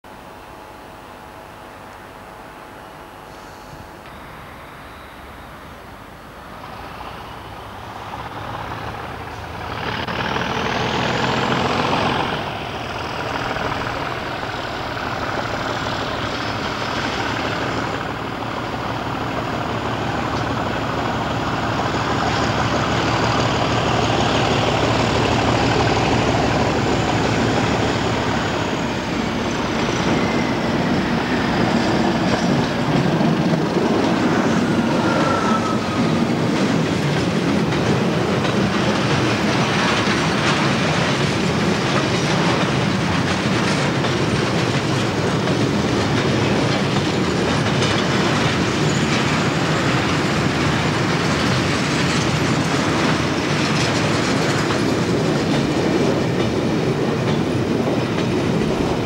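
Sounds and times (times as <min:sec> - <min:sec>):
faint rising whine: 0:00.1 - 0:36.4
diesel locomotive passing: 0:00.1 - 0:59.0
train wheel noise: 0:00.1 - 0:59.0.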